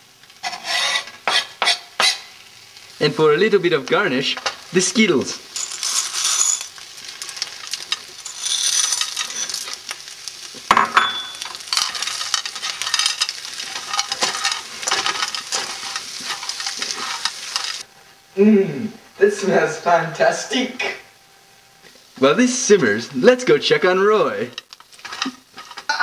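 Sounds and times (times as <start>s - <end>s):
food sizzling in skillet: 0.0s - 17.9s, 21.8s - 26.0s
utensil scraping pan: 0.4s - 2.2s, 5.5s - 17.8s, 24.6s - 26.0s.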